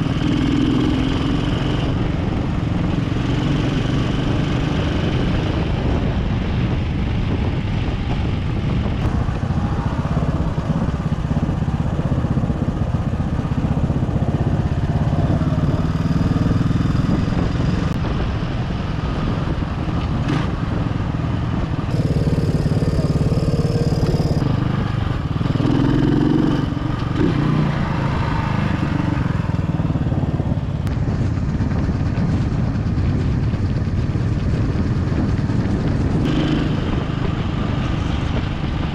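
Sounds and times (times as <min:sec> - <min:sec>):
motorcycle engine running: 0:00.0 - 0:38.9.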